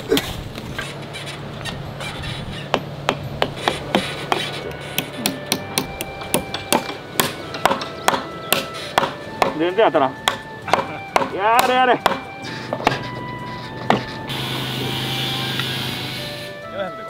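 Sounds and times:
hammer knocking on wooden post: 0:02.7 - 0:09.6, 0:10.2 - 0:14.1.

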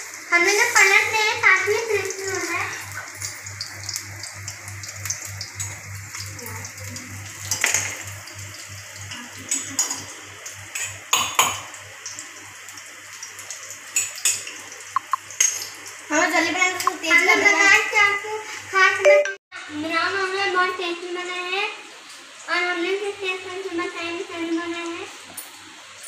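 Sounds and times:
food sizzling in hot oil: 0:00.0 - 0:19.2.

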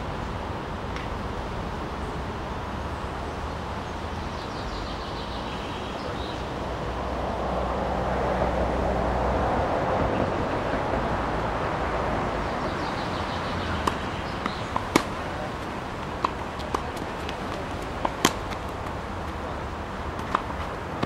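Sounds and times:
background noise rush: 0:00.0 - 0:21.0
tennis ball pops: 0:13.8 - 0:15.2, 0:16.1 - 0:19.0.

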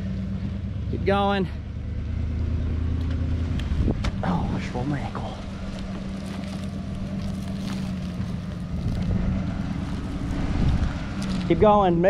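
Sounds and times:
truck engine running under load: 0:00.0 - 0:12.0
logs dragging on a chain: 0:05.2 - 0:11.5
wind on the microphone: 0:10.5 - 0:11.7.

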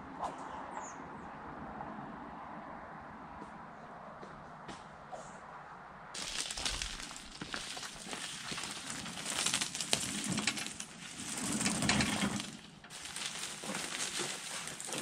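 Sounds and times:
dry leaves and brush rustling: 0:06.2 - 0:15.0.

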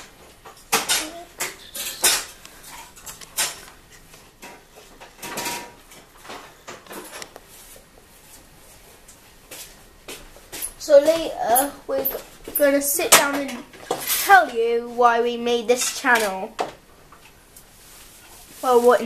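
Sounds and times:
utensils and dishes clattering: 0:00.0 - 0:07.3, 0:11.4 - 0:14.6, 0:15.7 - 0:16.6.

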